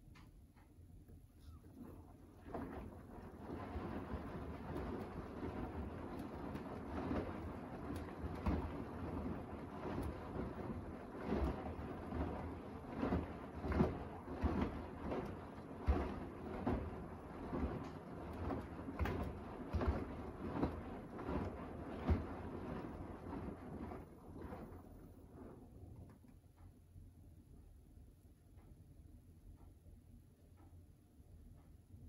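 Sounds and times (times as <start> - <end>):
water sloshing in washing machine: 1.4 - 26.3.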